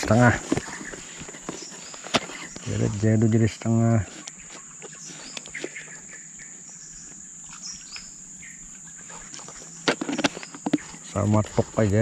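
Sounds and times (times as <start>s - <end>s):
bird chirps: 4.2s - 11.2s.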